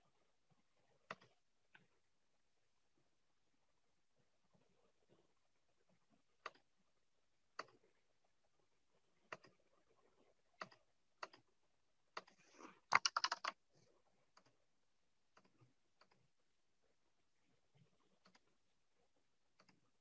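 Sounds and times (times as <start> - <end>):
computer keyboard typing: 12.2 - 13.6.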